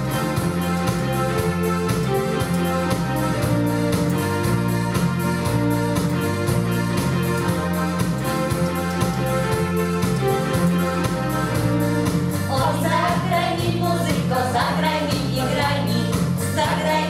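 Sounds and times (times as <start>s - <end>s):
electronic keyboard with beat: 0.0s - 17.0s
group of voices singing: 12.5s - 17.0s.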